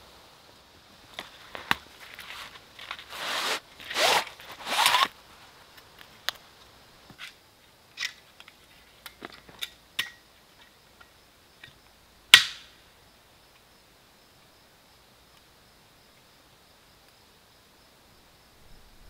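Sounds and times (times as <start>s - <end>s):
saw drawn from sheath rasp: 3.0s - 5.1s
loud metallic snap: 12.3s - 12.7s.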